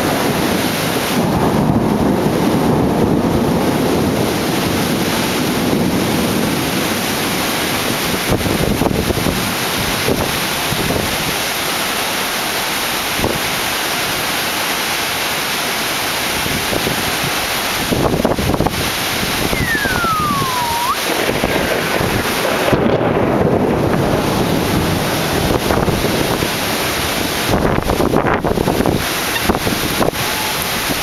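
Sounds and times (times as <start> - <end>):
wind buffeting microphone: 0.0 - 11.4, 16.4 - 31.0
heavy rain: 0.0 - 31.0
falling whistle-like tone: 19.5 - 21.1.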